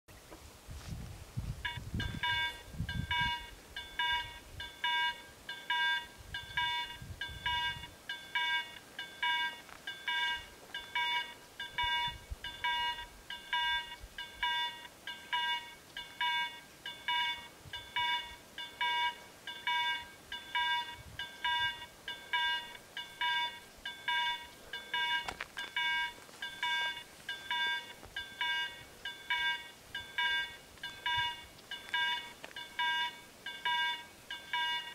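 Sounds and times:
level crossing warning bell ringing: 0:01.6 - 0:34.9.

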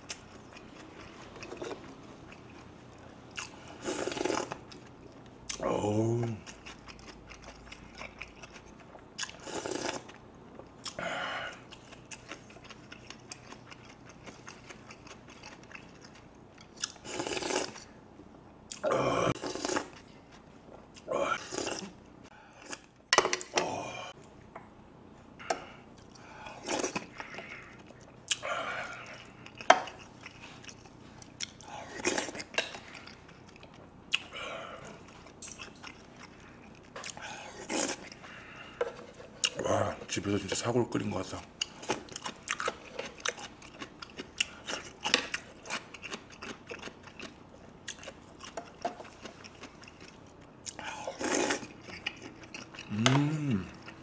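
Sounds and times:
chewing and slurping: 0:11.6 - 0:17.9, 0:19.4 - 0:22.0, 0:41.6 - 0:54.0.

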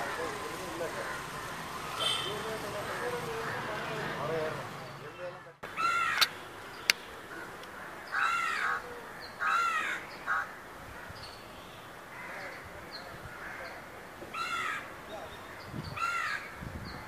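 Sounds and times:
crow cawing: 0:01.0 - 0:01.4, 0:02.0 - 0:04.3, 0:05.7 - 0:06.3, 0:07.3 - 0:11.1, 0:12.1 - 0:12.6, 0:13.3 - 0:14.9, 0:16.0 - 0:16.6.

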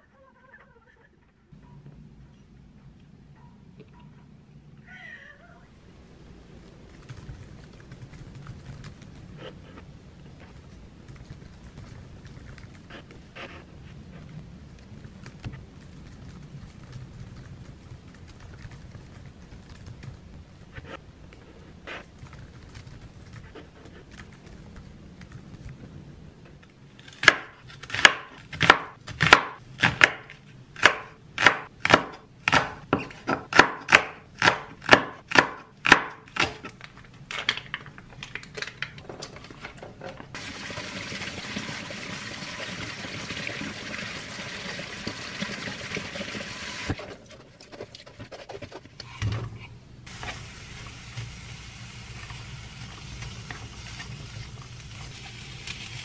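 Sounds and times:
knife chopping on wooden board: 0:27.2 - 0:36.7
steady hiss: 0:50.0 - 0:56.0.

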